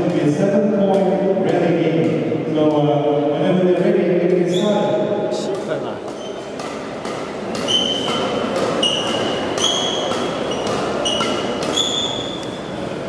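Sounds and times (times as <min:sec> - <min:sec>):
racket hitting shuttlecock: 0:00.0 - 0:02.8, 0:03.6 - 0:12.7
shoes squeaking on court: 0:04.4 - 0:04.9, 0:06.0 - 0:12.8.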